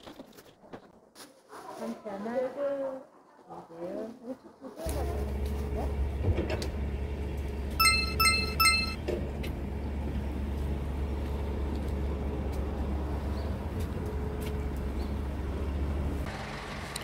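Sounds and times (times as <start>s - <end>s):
road traffic rumble: 4.8s - 17.0s
short electronic beeps: 7.8s - 9.0s.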